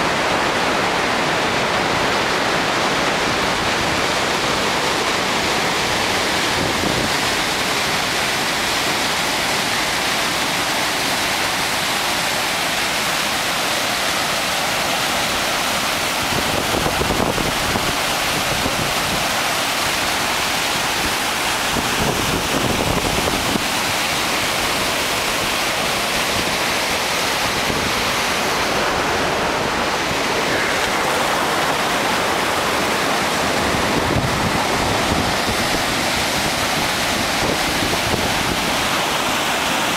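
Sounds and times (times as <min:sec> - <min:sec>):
river water rushing over weir: 0:00.0 - 0:39.9
wind buffeting microphone: 0:21.7 - 0:23.8, 0:31.4 - 0:39.0.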